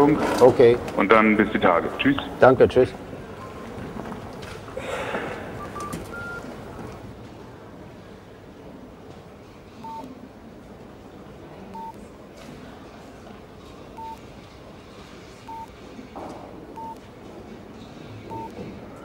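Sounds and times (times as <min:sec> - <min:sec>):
phone keypad beeps: 0:05.6 - 0:06.4, 0:09.8 - 0:10.1, 0:11.7 - 0:12.0, 0:14.0 - 0:14.2, 0:15.5 - 0:15.8, 0:16.8 - 0:17.0, 0:18.3 - 0:18.6.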